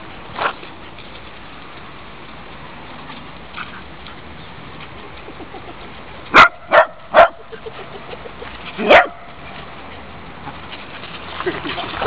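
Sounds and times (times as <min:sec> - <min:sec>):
small dog barking: 0:06.3 - 0:07.4, 0:08.8 - 0:09.2.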